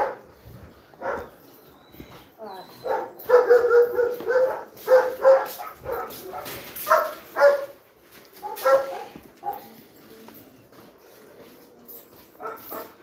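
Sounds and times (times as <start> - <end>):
dogs barking: 0.0 - 0.3, 1.0 - 1.5, 2.7 - 7.8, 8.4 - 9.8, 12.4 - 13.0.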